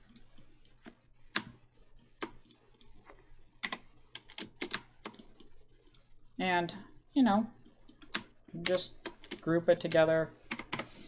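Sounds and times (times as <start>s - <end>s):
keyboard and mouse clicking: 0.0s - 1.6s, 2.2s - 6.1s, 7.6s - 11.0s.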